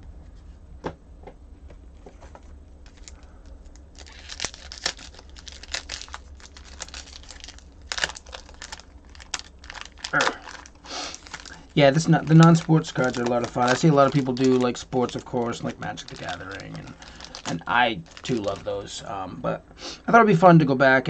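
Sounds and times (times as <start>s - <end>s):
foil wrapper tearing and crinkling: 2.8s - 19.0s.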